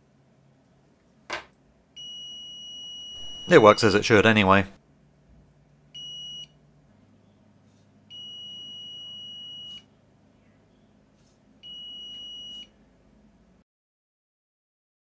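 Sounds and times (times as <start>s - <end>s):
multimeter continuity beeps: 2.0s - 4.0s, 6.0s - 6.6s, 8.1s - 9.9s, 11.6s - 12.8s.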